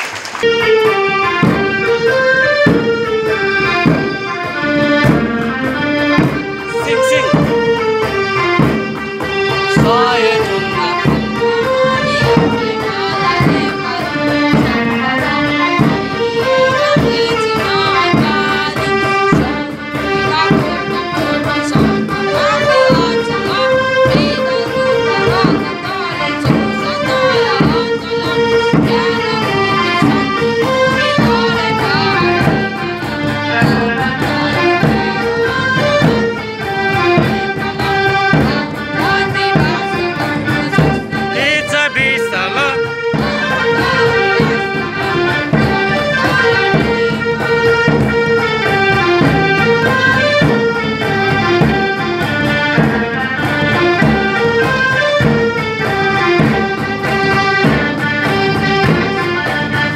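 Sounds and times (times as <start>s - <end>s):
cajon beat: 0.0s - 59.9s
hand drum beat: 0.4s - 59.9s
young voices singing together: 9.4s - 35.4s, 37.5s - 44.6s.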